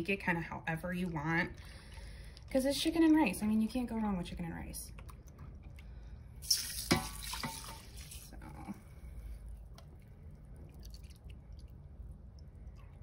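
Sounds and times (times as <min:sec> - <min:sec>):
liquid pouring and splashing: 0:04.9 - 0:08.6, 0:09.3 - 0:13.0.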